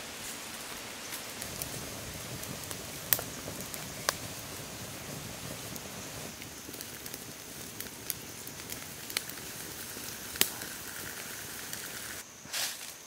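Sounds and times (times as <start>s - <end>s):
wood fire crackling: 0.1s - 12.2s
fire sharp pops: 1.2s - 12.2s.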